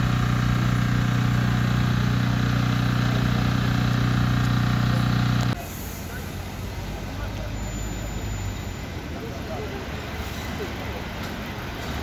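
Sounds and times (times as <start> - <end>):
engine idling: 0.0 - 8.7.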